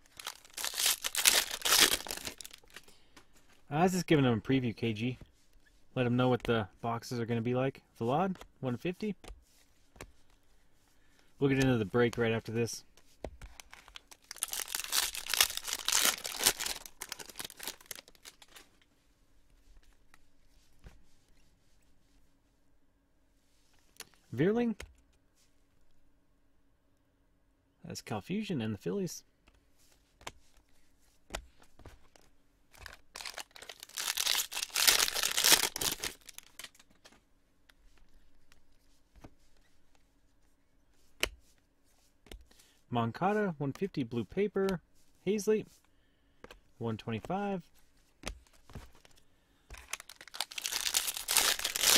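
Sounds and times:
wrapper tearing and crinkling: 0:00.0 - 0:02.8, 0:13.6 - 0:18.7, 0:32.8 - 0:36.8, 0:49.8 - 0:51.9.

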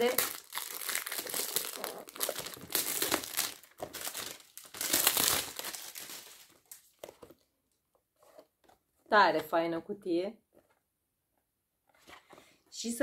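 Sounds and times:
packaging crinkling: 0:00.0 - 0:07.4.

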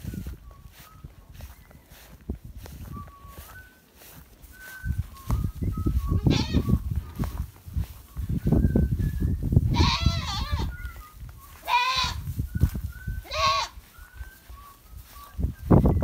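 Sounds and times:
thumping and rustling on grass: 0:05.0 - 0:08.6
goats bleating: 0:06.2 - 0:06.7, 0:09.7 - 0:10.7, 0:11.6 - 0:12.2, 0:13.2 - 0:13.8.

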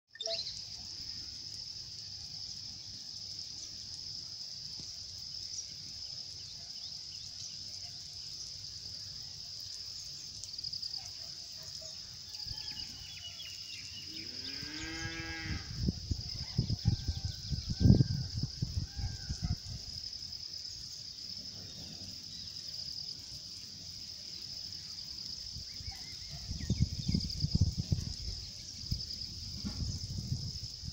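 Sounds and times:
insect buzzing: 0:07.5 - 0:19.5
cow mooing: 0:14.4 - 0:15.8.

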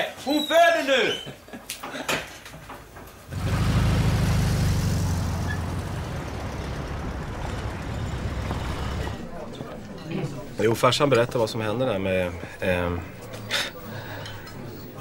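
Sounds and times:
vehicle engine running loudly: 0:03.3 - 0:09.3.

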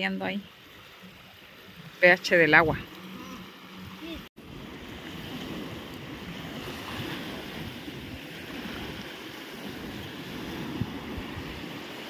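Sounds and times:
waves washing onto shore: 0:00.0 - 0:12.0
wind buffeting microphone: 0:02.5 - 0:12.0.

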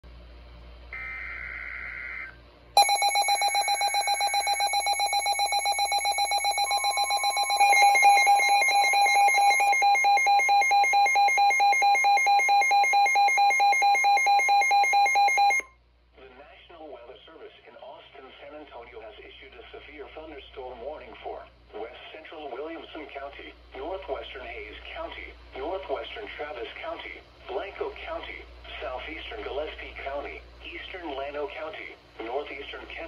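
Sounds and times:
fast-pulsing electronic alarm beeps: 0:01.0 - 0:15.6
steady warning alarm tone: 0:01.0 - 0:15.6
digital header tones: 0:02.8 - 0:15.6.

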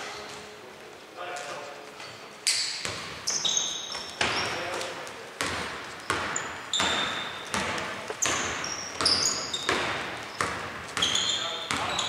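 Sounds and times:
sneaker squeaks on floor: 0:02.1 - 0:12.0
basketball bouncing: 0:02.8 - 0:12.0.

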